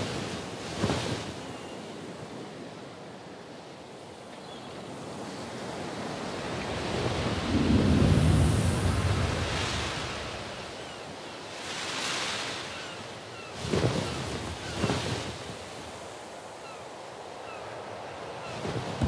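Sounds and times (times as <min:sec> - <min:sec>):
rushing wind gusts: 0:05.0 - 0:12.2.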